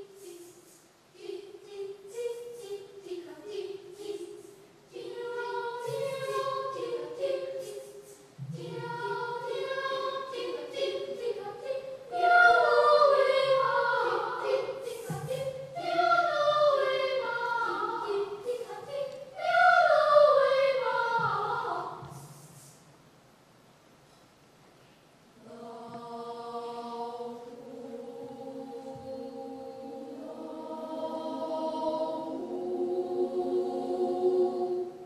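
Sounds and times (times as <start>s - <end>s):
children's choir singing: 0.0s - 22.8s, 25.4s - 35.0s.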